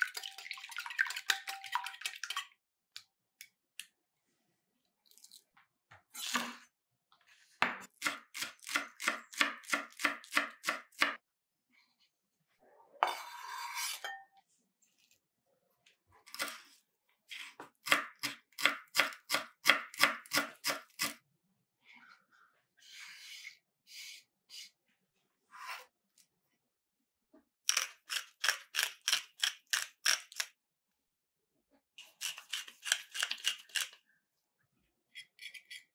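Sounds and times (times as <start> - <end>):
knife scraping cutting board: 13.0 - 14.2, 32.0 - 34.0, 35.2 - 35.9.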